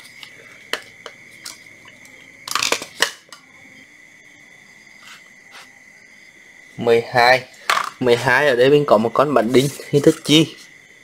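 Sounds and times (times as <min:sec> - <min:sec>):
steady high-pitched whine: 0:00.0 - 0:11.0
scraping and clatter on tiles: 0:07.6 - 0:08.0.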